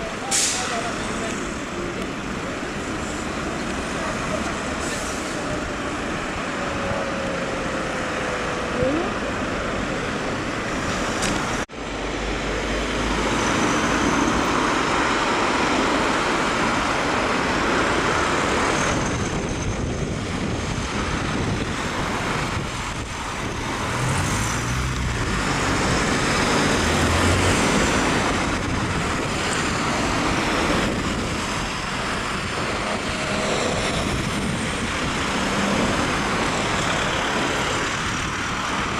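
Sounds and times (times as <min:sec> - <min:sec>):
tyre noise on road: 0:00.0 - 0:38.9
cars driving past: 0:20.4 - 0:38.9.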